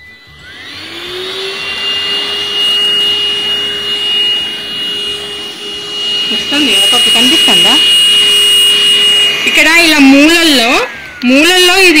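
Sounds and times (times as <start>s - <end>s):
handheld vacuum cleaner whine: 0.0s - 12.0s.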